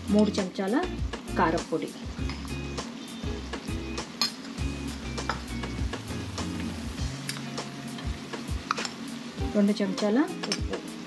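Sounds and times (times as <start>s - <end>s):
soft background music: 0.0s - 11.0s
spoon clicking against bowl: 8.6s - 9.0s.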